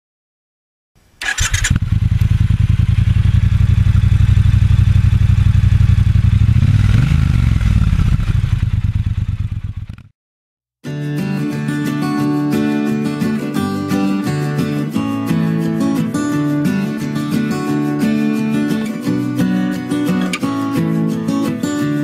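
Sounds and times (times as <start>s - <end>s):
motorcycle engine starting and idling: 1.2s - 10.1s.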